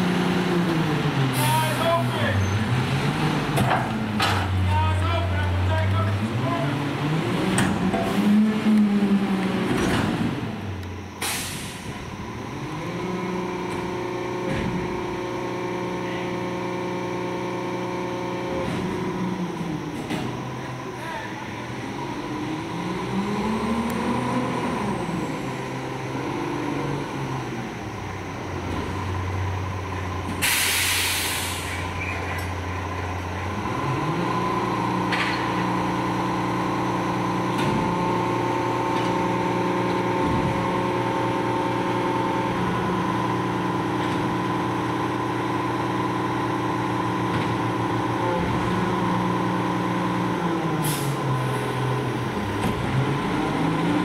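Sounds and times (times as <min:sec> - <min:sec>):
garbage truck drive hum: 0:00.0 - 0:54.0
air brake hiss: 0:11.2 - 0:11.9, 0:30.4 - 0:32.0, 0:50.8 - 0:51.2.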